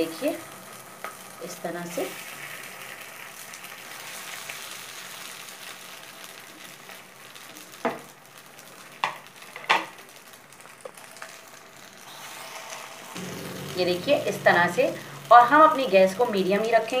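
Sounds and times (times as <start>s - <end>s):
oil sizzling in a pan: 0.0s - 17.0s.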